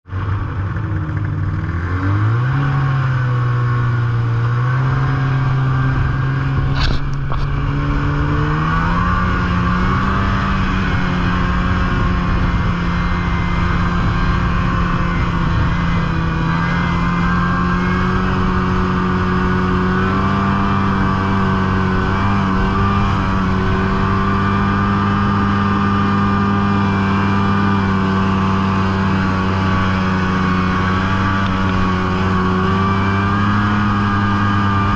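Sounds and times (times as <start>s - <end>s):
snowmobile engine accelerating: 0.1s - 34.9s.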